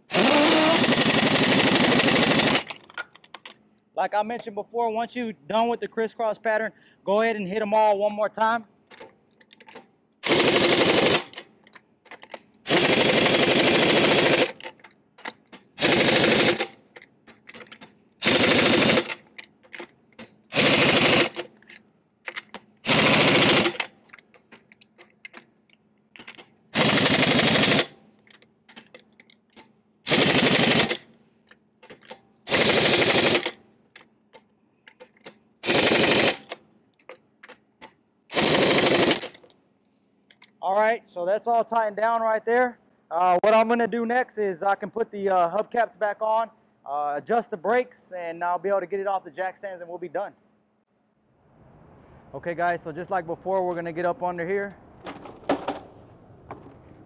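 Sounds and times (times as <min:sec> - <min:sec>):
pneumatic impact wrench hammering: 0:00.0 - 0:03.2, 0:08.9 - 0:11.5, 0:12.1 - 0:25.5, 0:26.2 - 0:31.1, 0:31.8 - 0:33.6, 0:34.4 - 0:39.5.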